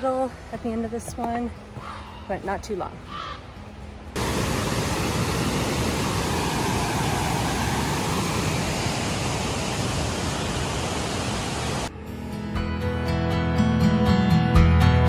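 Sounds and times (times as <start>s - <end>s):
river rapids rushing: 4.2s - 11.9s.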